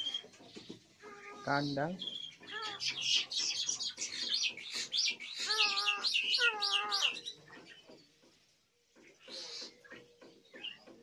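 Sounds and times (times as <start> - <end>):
wavering lower bird calls: 0.0 - 0.3, 1.0 - 7.8
starlings chirping: 0.0 - 8.2, 9.0 - 11.0.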